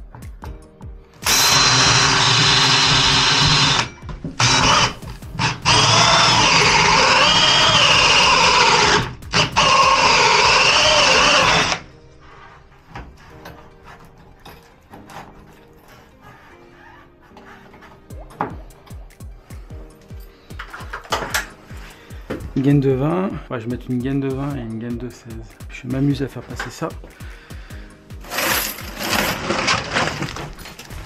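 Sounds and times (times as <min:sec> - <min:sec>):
power drill running: 0:01.2 - 0:11.9.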